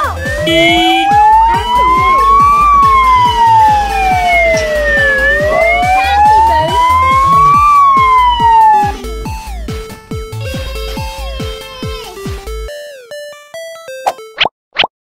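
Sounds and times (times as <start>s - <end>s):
background music with beat: 0.0s - 14.3s
toy electronic siren wailing: 0.2s - 9.0s.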